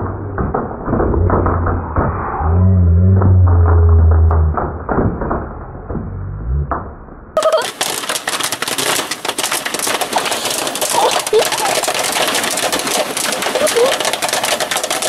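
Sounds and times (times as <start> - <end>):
low hum: 0.0 - 7.4
popcorn popping in foil pan: 7.4 - 15.0.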